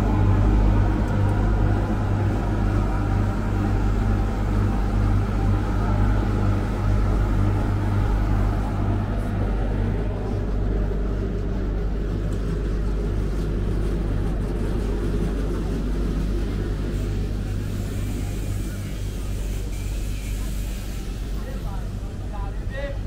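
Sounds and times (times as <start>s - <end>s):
low engine rumble: 0.0s - 23.0s.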